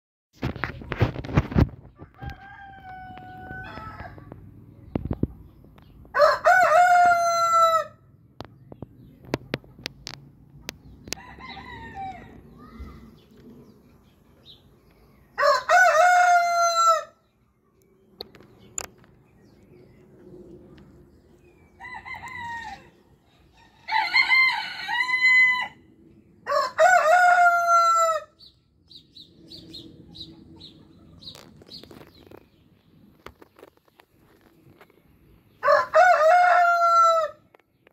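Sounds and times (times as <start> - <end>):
roosters crowing: 1.9 - 4.6, 6.1 - 8.1, 11.0 - 13.1, 15.3 - 17.2, 21.5 - 28.5, 35.5 - 37.6.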